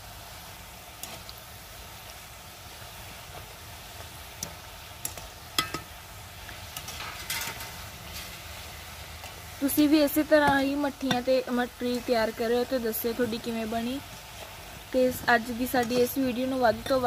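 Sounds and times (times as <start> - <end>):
deep-frying sizzle: 0.0 - 17.0
skimmer scraping against pan: 6.8 - 8.4.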